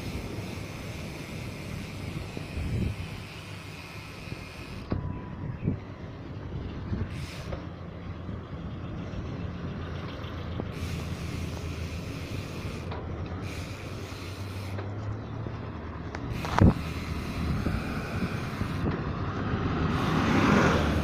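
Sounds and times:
wind hiss on microphone: 0.0s - 4.9s, 16.4s - 18.9s
vehicle engine running: 0.0s - 21.0s.

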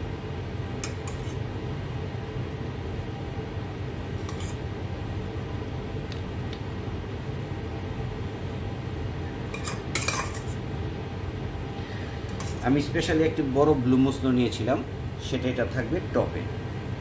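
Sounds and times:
steady low hum: 0.0s - 17.0s
metal spoon scraping a bowl: 0.8s - 1.4s, 4.2s - 4.6s, 9.6s - 10.6s.

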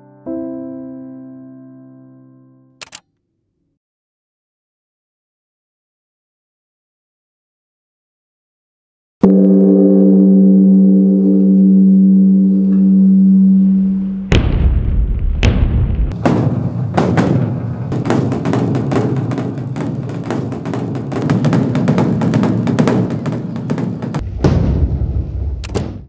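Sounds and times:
drumming: 15.4s - 24.9s.

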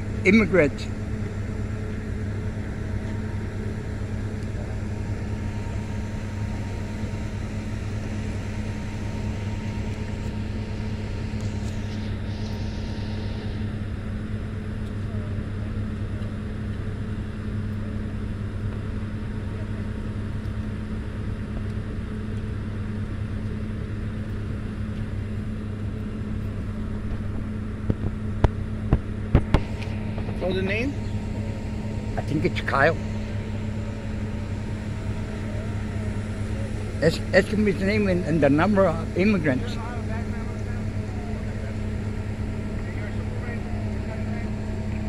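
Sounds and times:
engine idling hum: 0.0s - 45.0s.

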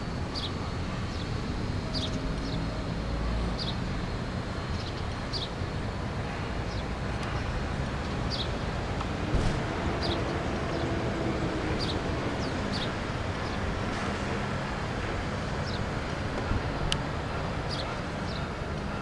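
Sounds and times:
sparrows chirping: 0.4s - 1.3s, 1.9s - 2.7s, 3.6s - 3.8s, 4.6s - 5.6s, 6.6s - 8.8s, 9.9s - 13.7s, 15.6s - 16.0s, 17.6s - 19.0s.

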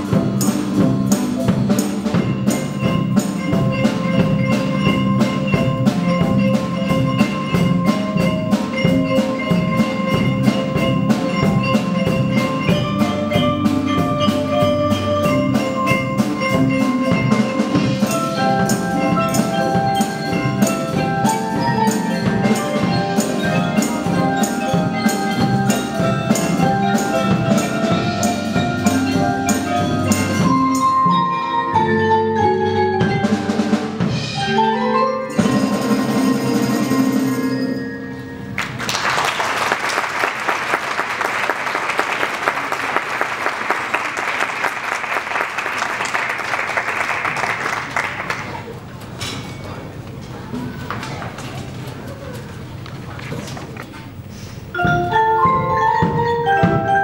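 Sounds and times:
fast steady drum strokes: 0.0s - 30.8s
marimbas and mallet percussion: 0.0s - 38.9s, 41.1s - 57.0s.

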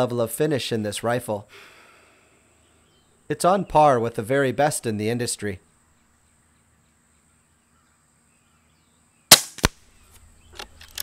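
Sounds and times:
air rifle shot: 9.3s - 9.8s.

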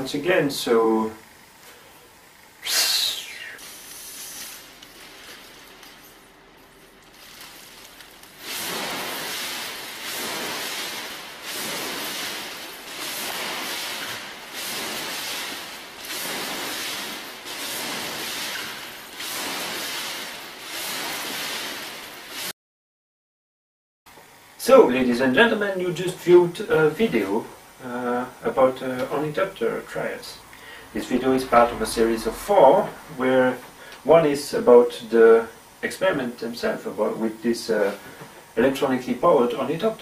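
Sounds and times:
faint hiss: 0.0s - 22.5s, 24.1s - 40.0s
flapping wings whooshing: 7.5s - 22.5s.

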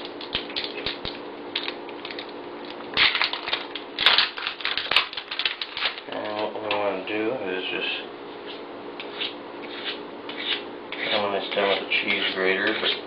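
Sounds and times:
wrapper crinkling and tearing: 0.1s - 6.5s.

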